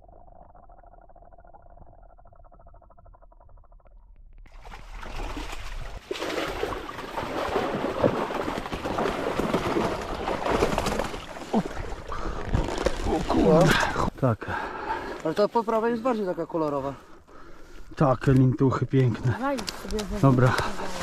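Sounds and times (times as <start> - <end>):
water streaming from a net: 4.5 - 13.6
water splashes: 4.5 - 14.1.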